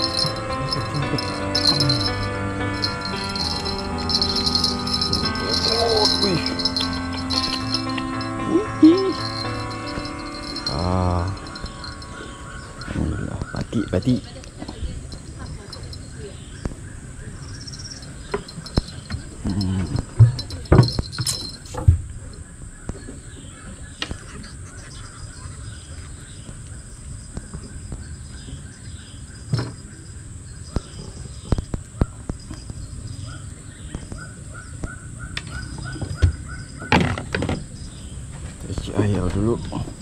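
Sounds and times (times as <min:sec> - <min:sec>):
high insect drone: 0:00.0 - 0:16.6
birds calling: 0:00.0 - 0:21.7, 0:22.3 - 0:40.0.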